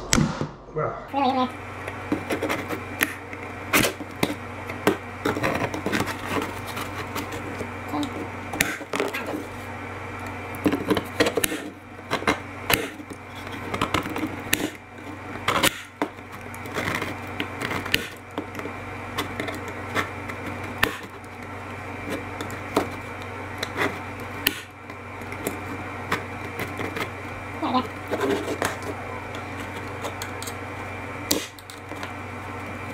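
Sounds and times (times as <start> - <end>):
low hum: 0.0 - 32.9
knife scraping plastic: 1.9 - 9.7, 10.6 - 32.9.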